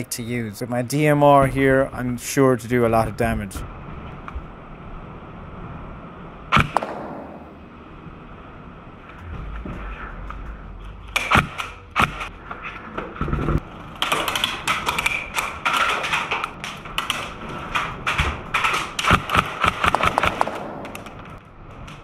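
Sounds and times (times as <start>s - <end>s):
airsoft gunshots: 6.6s - 7.7s, 19.1s - 21.3s.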